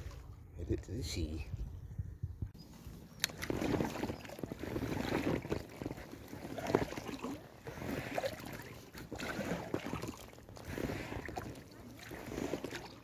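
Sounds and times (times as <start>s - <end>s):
kayak paddle strokes in water: 3.2s - 13.0s.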